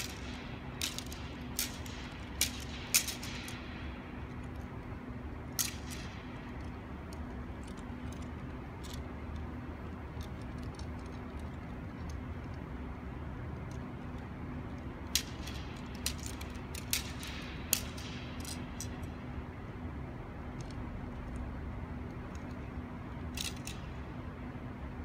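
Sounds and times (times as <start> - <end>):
wooden staff clicks and knocks: 0.0 - 4.7, 15.1 - 19.2.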